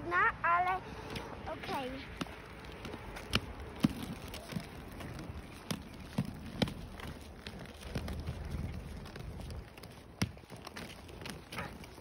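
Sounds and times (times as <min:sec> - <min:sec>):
skate wheels rumbling: 0:00.0 - 0:12.0
skates clacking on ground: 0:00.6 - 0:12.0.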